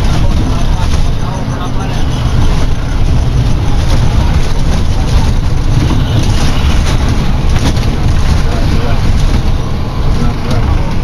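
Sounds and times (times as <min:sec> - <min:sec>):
bus diesel engine running: 0:00.0 - 0:11.0
road noise: 0:00.0 - 0:11.0.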